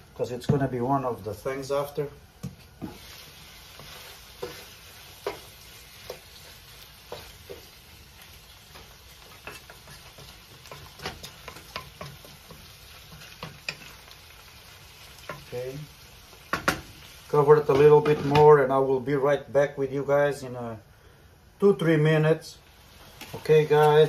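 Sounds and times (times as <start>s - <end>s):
shrimp sizzling in a pan: 1.4s - 18.4s, 22.6s - 24.0s
wooden spoon knocking and scraping pan: 3.7s - 7.8s, 8.7s - 14.0s, 16.5s - 16.9s.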